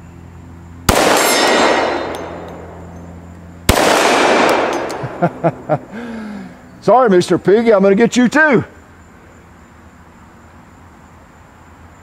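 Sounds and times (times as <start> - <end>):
pistol shots with echo: 0.9 - 3.1, 3.7 - 5.4.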